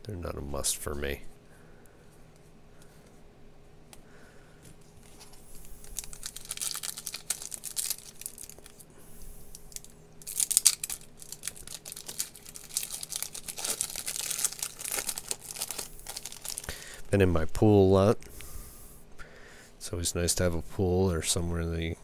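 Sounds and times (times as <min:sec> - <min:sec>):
foil wrapper tearing and crinkling: 0:05.8 - 0:08.9, 0:09.5 - 0:16.8.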